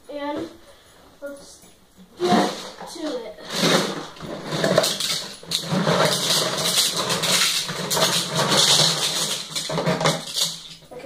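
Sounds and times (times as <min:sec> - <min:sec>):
toy cars rattling in plastic jar: 0:03.4 - 0:11.0.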